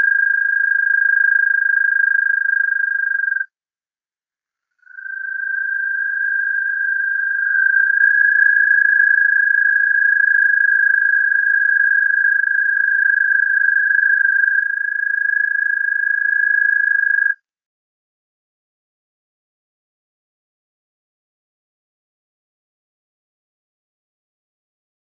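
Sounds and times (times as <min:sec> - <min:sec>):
toad trilling: 0:00.0 - 0:03.5, 0:04.8 - 0:17.4.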